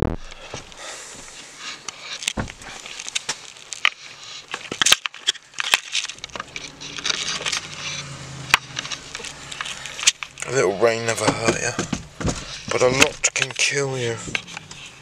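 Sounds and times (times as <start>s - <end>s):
camera handling clicks and crackles: 1.9s - 10.4s.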